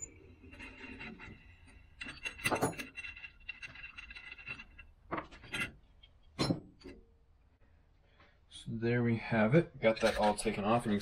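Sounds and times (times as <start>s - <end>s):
metal clinking and scraping: 0.0s - 7.1s, 9.9s - 11.0s.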